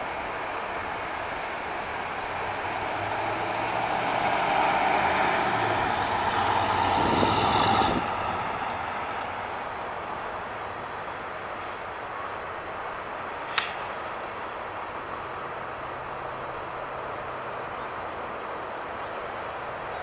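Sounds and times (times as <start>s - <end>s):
car engine driving slowly: 0.0s - 20.0s.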